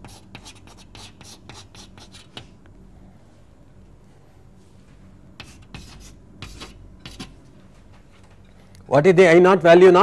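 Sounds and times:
pen writing strokes: 0:00.0 - 0:02.5, 0:05.4 - 0:07.4
low electrical hum: 0:00.0 - 0:10.0.

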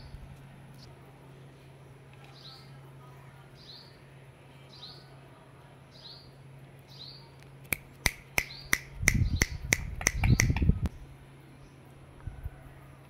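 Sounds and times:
sharp clicks: 0:07.7 - 0:10.7.

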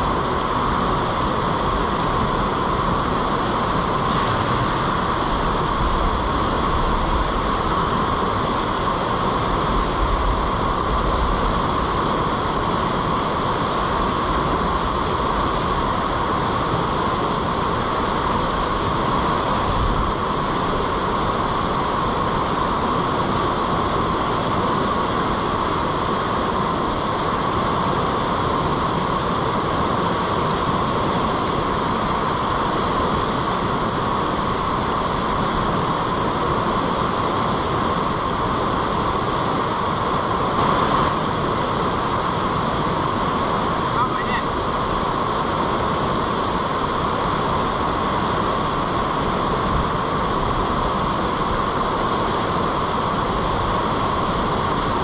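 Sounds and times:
river rapids rushing: 0:00.0 - 0:55.0.

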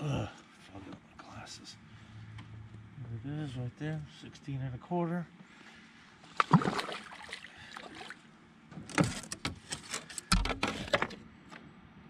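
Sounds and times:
water splashing: 0:06.3 - 0:08.2.

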